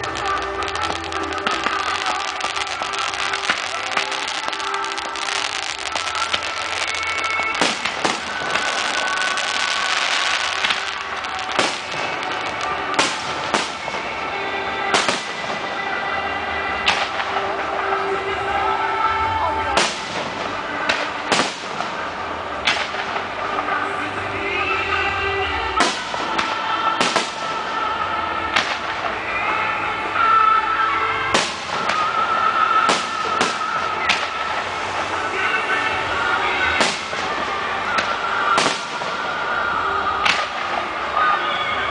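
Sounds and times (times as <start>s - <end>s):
firework shells bursting: 0.0s - 14.1s, 36.7s - 39.3s
firework bangs: 0.0s - 18.8s, 19.7s - 30.6s, 31.2s - 41.9s
crackle of firework stars: 0.0s - 41.9s
steady music: 0.0s - 41.9s.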